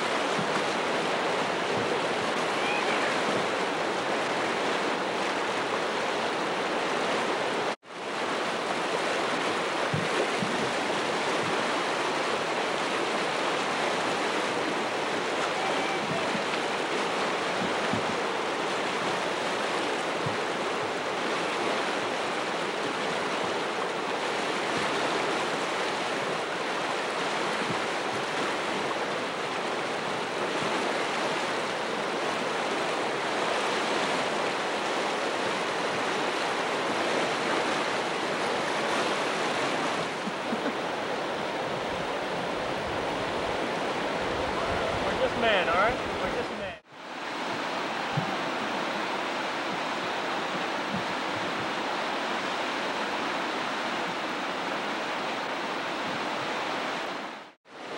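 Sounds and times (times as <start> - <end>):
river whitewater rushing: 0.0 - 57.9.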